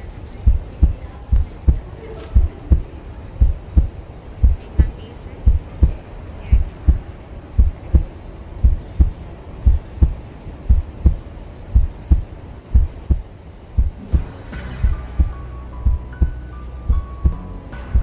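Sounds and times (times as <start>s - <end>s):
low hum: 0.0s - 18.0s
heartbeat lub-dub beats: 0.4s - 18.0s
rising swell: 13.8s - 18.0s.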